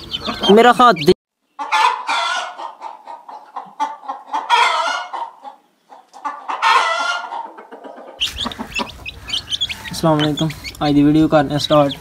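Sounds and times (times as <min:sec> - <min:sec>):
chicks peeping: 0:00.0 - 0:12.0
outdoor background noise: 0:00.0 - 0:12.0
rooster crowing: 0:08.5 - 0:10.3.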